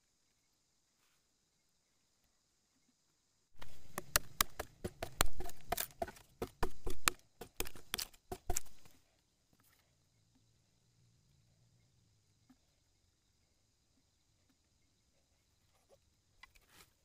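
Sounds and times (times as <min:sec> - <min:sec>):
machete chopping bamboo: 0:03.6 - 0:08.9.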